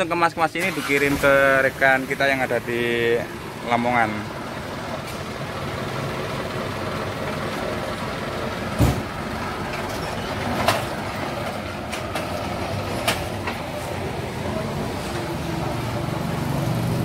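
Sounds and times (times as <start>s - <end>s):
diesel truck engine idling: 0.0s - 17.0s
thump: 8.8s - 9.1s.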